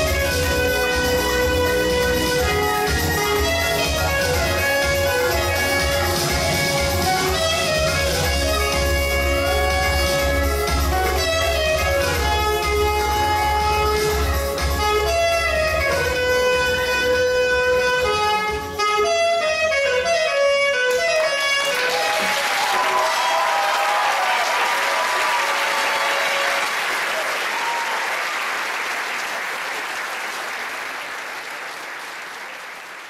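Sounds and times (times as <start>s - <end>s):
saxophone with accompaniment: 0.0s - 22.4s
audience applause: 21.6s - 33.0s.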